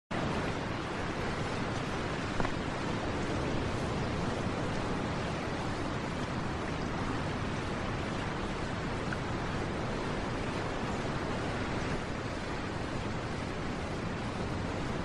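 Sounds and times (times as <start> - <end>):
ocean surf on beach: 0.1 - 15.0.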